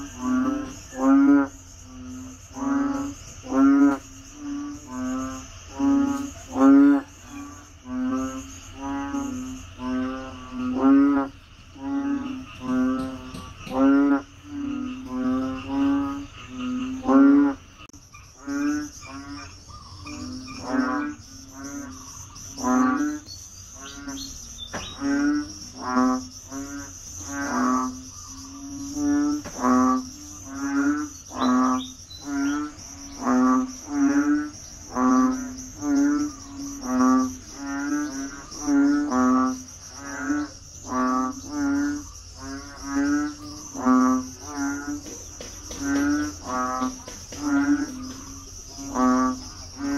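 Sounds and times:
frogs calling: 0.0s - 49.9s
high insect trill: 0.0s - 49.9s.

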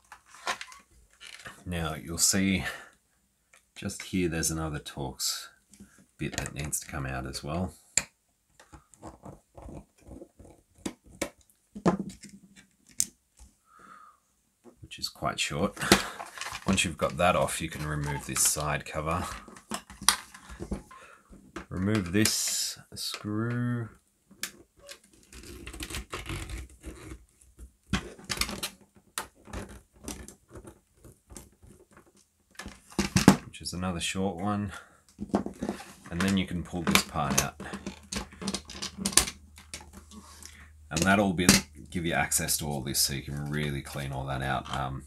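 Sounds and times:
plastic parts and screwdriver clicks: 35.1s - 41.7s.

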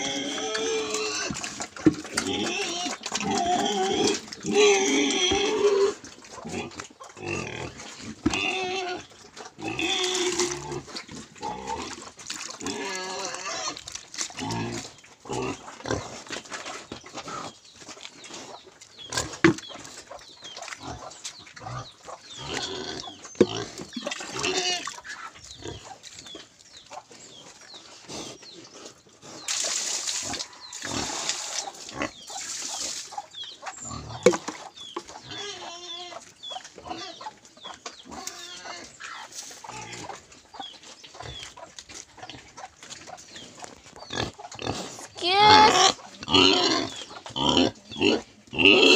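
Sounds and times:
pigs grunting: 0.0s - 17.6s, 18.2s - 26.3s, 33.7s - 37.4s, 38.1s - 48.9s.

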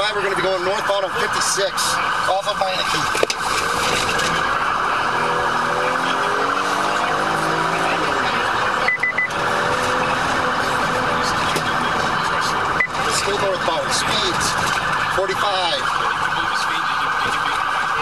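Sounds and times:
police siren warbling: 0.0s - 18.0s
short high beeps: 8.8s - 9.3s.

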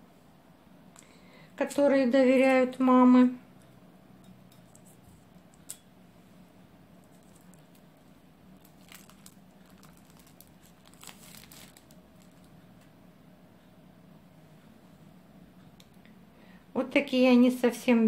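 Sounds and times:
sausage casing crinkling and tearing: 7.0s - 12.6s.

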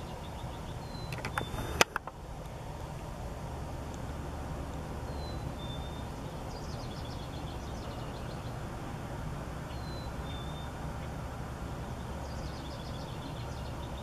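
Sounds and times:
birds chirping: 0.0s - 2.1s, 5.0s - 14.0s.

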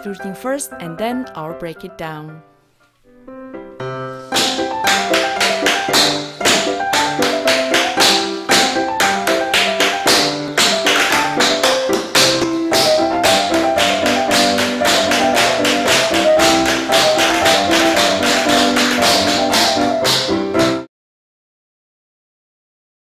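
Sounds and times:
background music: 0.0s - 20.9s
tap shoes clicking on wooden floor: 4.3s - 20.8s.

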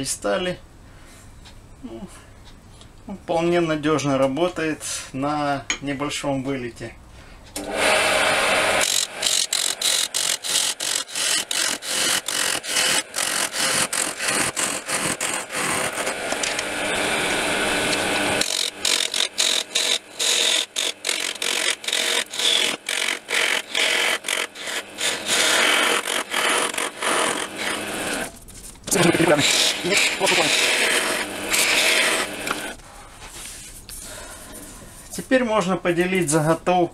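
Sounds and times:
lathe tool scraping wood: 7.6s - 32.8s.

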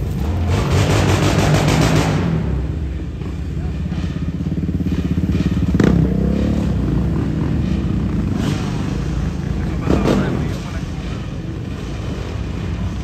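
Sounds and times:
quad engine revving: 0.0s - 3.0s, 3.8s - 13.0s.

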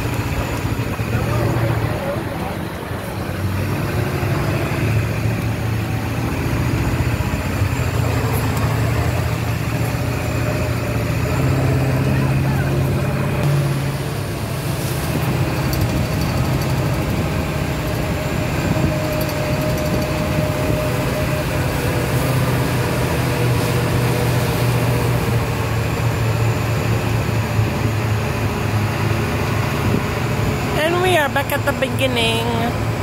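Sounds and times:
truck engine droning: 0.0s - 33.0s.

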